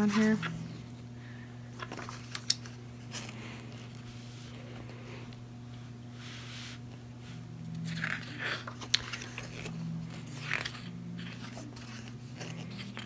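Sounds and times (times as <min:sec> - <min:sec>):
cards rustling and crinkling: 0:00.0 - 0:00.7, 0:01.8 - 0:04.2, 0:07.8 - 0:13.0
steady low hum: 0:00.0 - 0:13.0.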